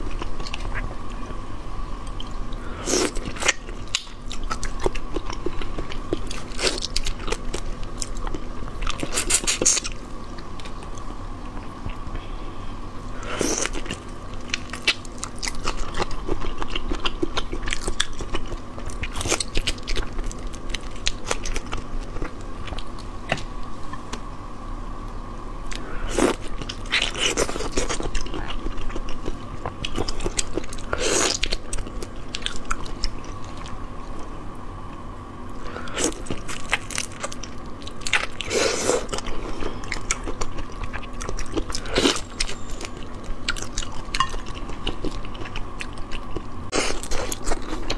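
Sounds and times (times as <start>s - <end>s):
faint steady hum: 0.0s - 47.9s
shrimp shells crunching while chewing: 13.3s - 23.4s, 26.1s - 33.8s, 35.7s - 47.9s.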